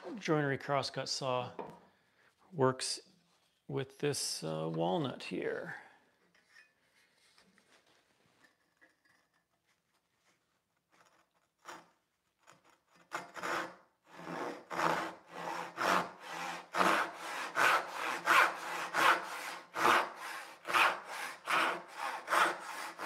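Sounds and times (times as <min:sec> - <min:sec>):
hand saw cutting wood: 0:13.0 - 0:23.0.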